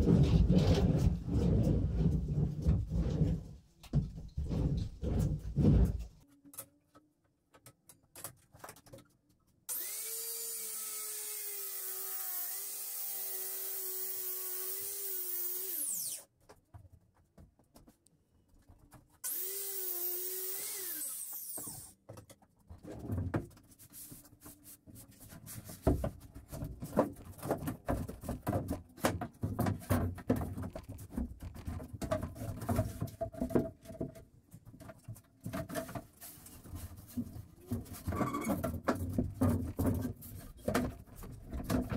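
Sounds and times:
circular saw cutting wood: 9.7 - 16.3, 19.2 - 22.0.

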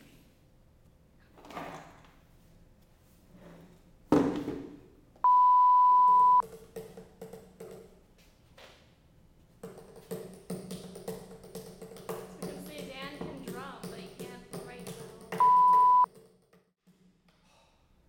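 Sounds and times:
high electronic beep: 5.3 - 6.4, 15.4 - 16.1.

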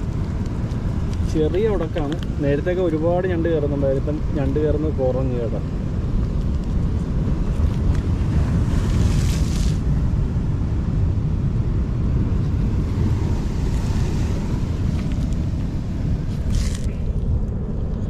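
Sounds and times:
wind buffeting microphone: 0.0 - 18.0
sea surf hissing: 12.8 - 17.1.

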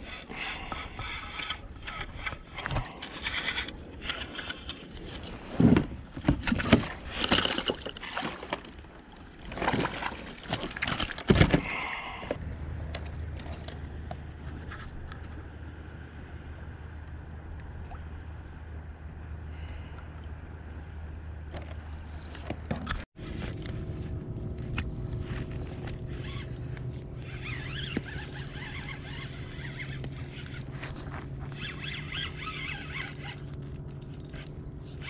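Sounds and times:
fish splashing and scraping: 0.0 - 12.2, 21.5 - 35.0
steady low rumble: 23.2 - 35.0.

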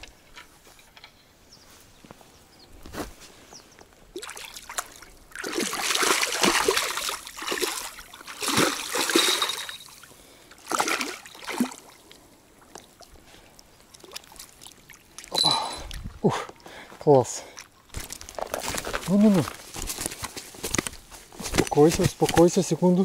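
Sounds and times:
fish thrashing and splashing: 4.2 - 13.1.

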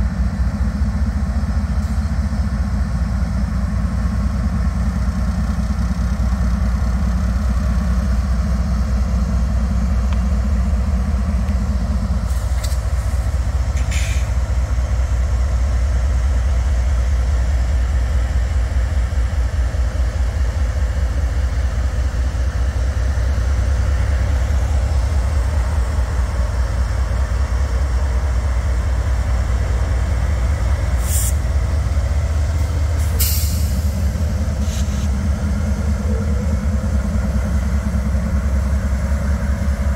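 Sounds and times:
quad engine running: 33.8 - 39.9.

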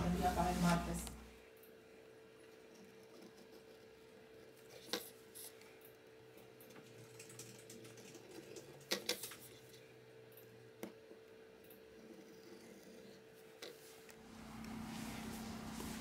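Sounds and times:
faint steady hum: 0.0 - 16.0.

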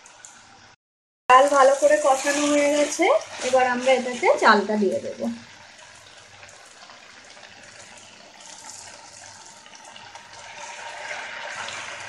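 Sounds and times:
food sizzling in a pot: 1.3 - 12.0
rice being poured: 5.6 - 12.0.

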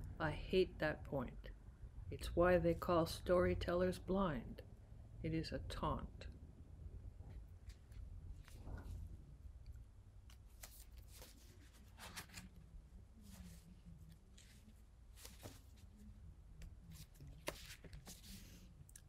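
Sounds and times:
low room hum: 0.0 - 19.0
paper sheets rustling: 10.3 - 16.2, 16.9 - 18.7.

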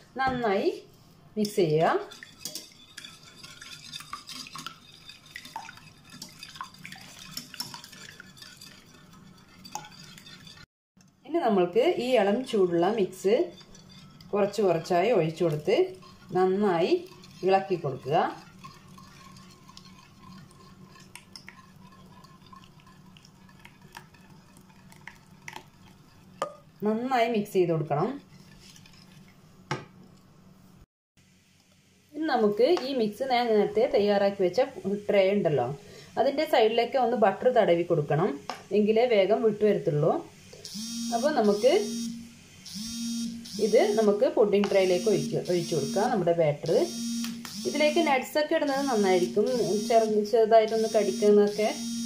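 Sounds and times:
utensil beating eggs in bowl: 1.4 - 10.7, 11.7 - 29.4, 43.5 - 51.8.

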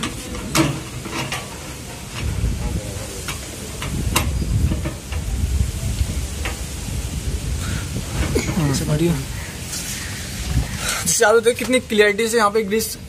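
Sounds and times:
steady low rumble: 1.7 - 10.9.

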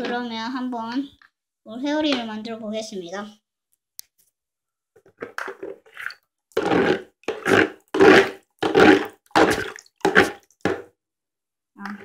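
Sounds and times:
water sloshing in a plastic basin: 7.4 - 10.8.

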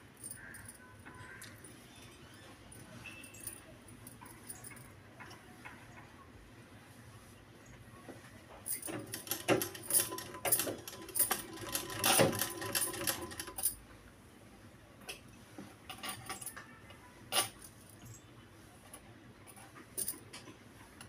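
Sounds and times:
sewing machine stitching: 8.8 - 13.7.

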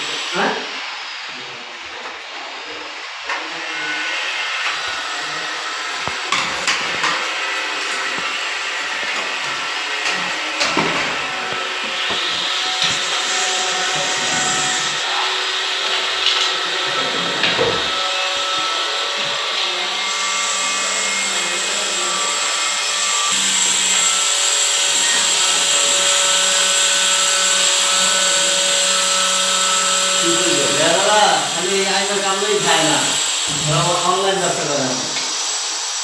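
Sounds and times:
vacuum hissing suction: 0.0 - 22.1, 29.9 - 36.0.

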